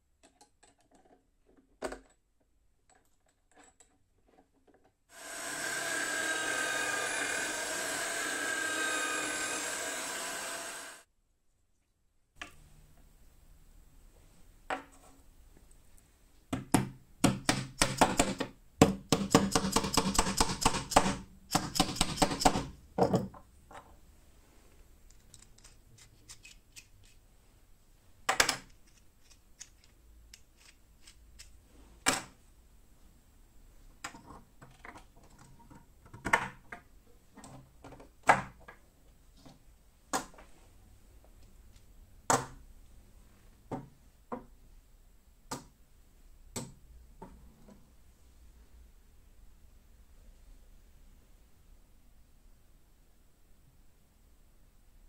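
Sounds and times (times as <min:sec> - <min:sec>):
bolts and wooden blocks set down: 0:23.0 - 0:23.9.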